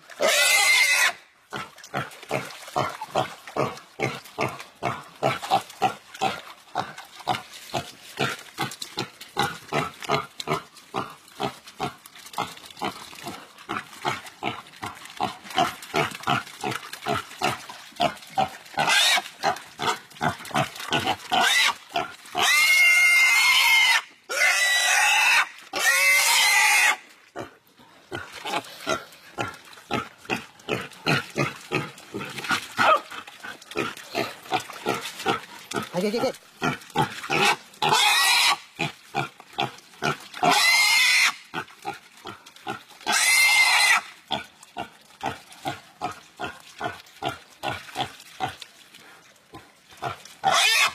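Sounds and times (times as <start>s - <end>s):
pig squealing loudly: 0.2s - 1.2s, 18.8s - 19.2s, 21.3s - 21.8s, 22.4s - 27.0s, 32.8s - 33.1s, 37.3s - 38.7s, 40.4s - 41.4s, 43.1s - 44.1s, 50.4s - 50.9s.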